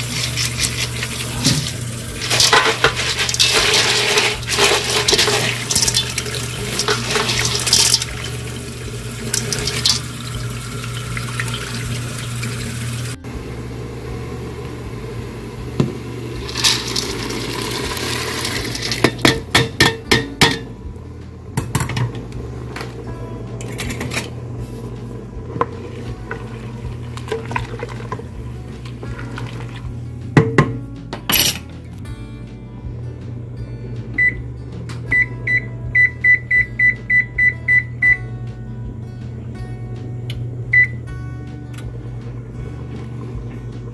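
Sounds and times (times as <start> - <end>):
beans pouring into a pot: 0.0 - 11.8, 16.4 - 19.1
steady low hum: 0.0 - 18.2, 19.0 - 31.0.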